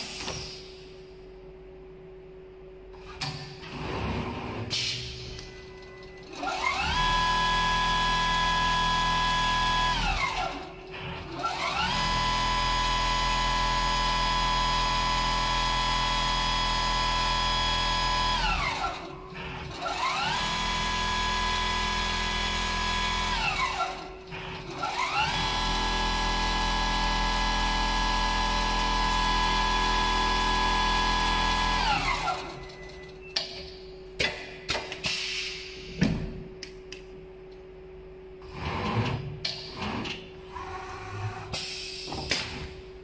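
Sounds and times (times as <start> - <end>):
sewing machine stitching whine: 5.4 - 33.3.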